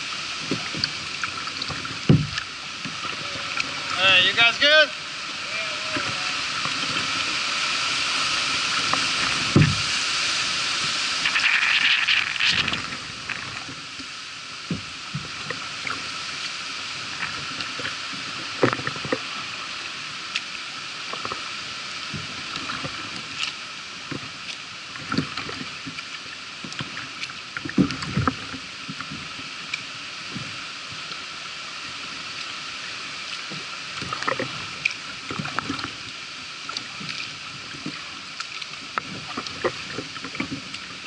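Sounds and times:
water splashing from paddle: 0.0 - 41.0
steady hiss: 1.8 - 18.5.

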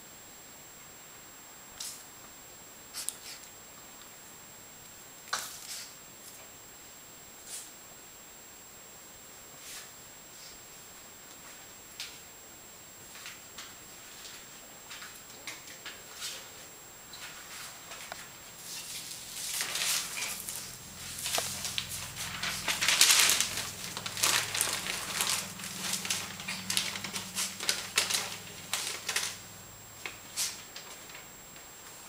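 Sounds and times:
puppy tearing paper: 18.6 - 29.4.

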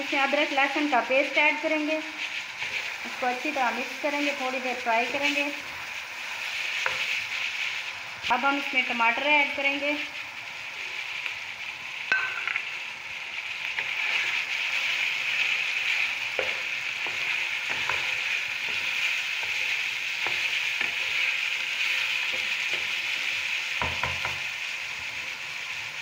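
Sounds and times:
food sizzling in hot oil: 0.0 - 26.0
wooden spoon knocking pan: 12.1 - 12.7, 23.8 - 24.4.

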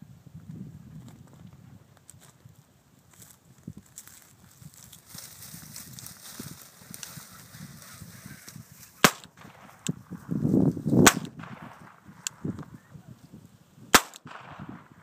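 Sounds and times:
sharp loud cracks: 9.0 - 10.0, 11.0 - 12.4, 13.9 - 15.0.

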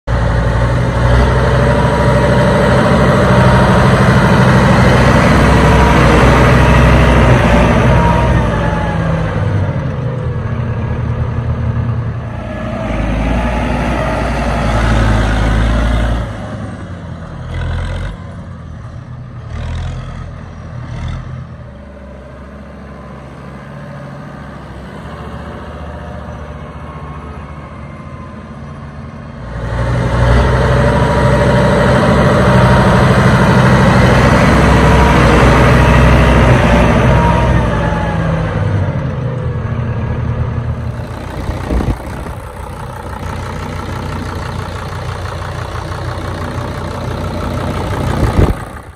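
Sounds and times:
tractor diesel engine idling: 0.1 - 17.5, 22.4 - 48.9.

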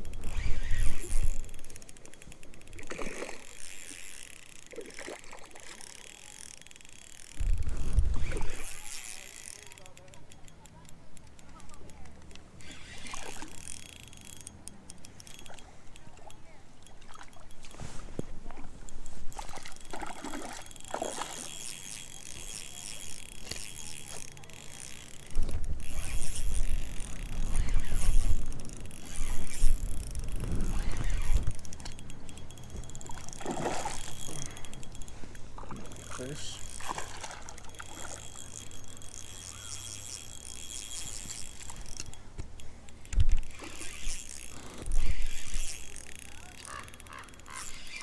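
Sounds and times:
water lapping and splashing: 0.0 - 6.5, 16.6 - 42.1.

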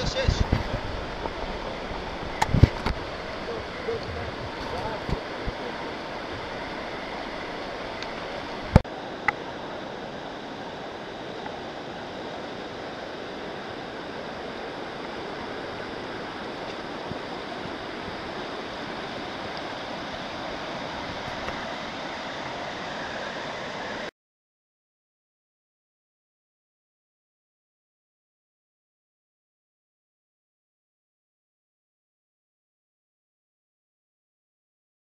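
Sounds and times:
river rushing over rocks: 0.0 - 24.1.

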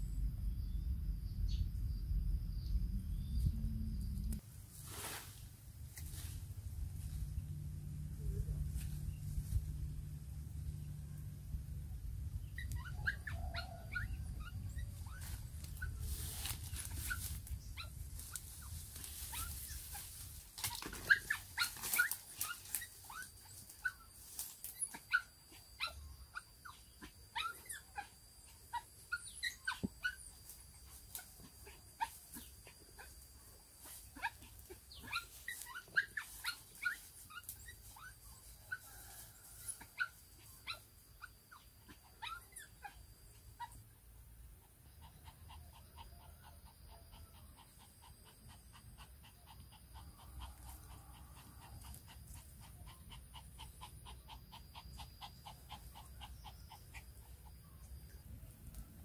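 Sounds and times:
small dog whimpering and yelping: 12.3 - 58.2.

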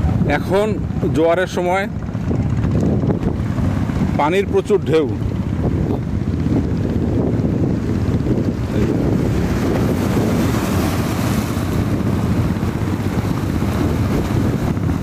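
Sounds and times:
wind buffeting microphone: 0.0 - 15.0
surf breaking on beach: 2.2 - 15.0.

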